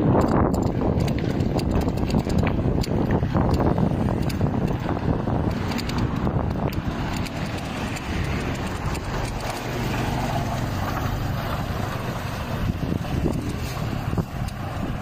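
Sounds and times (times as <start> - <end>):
bicycle tyres on concrete: 0.0 - 15.0
motor traffic: 0.0 - 15.0
rattling clicks: 0.0 - 15.0
wind noise: 0.0 - 15.0.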